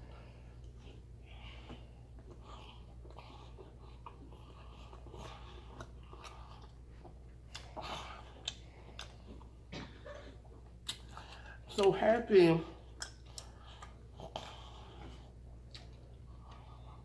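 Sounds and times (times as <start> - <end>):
faint low hum: 0.0 - 17.0
chewing with wet mouth smacks: 0.6 - 12.0, 12.8 - 17.0.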